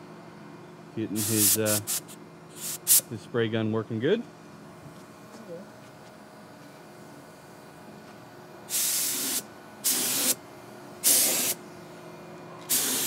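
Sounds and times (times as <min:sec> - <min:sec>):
spray gun hissing bursts: 0:01.2 - 0:03.0, 0:08.7 - 0:10.4, 0:11.0 - 0:11.6, 0:12.7 - 0:13.0.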